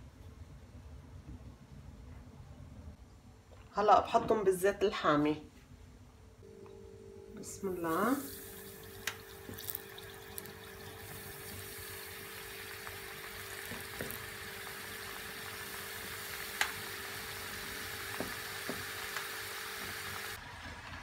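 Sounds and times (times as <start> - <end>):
faint steady hum: 0.0 - 20.3
potatoes deep-frying in oil: 7.8 - 21.0
oil popping: 8.5 - 16.9.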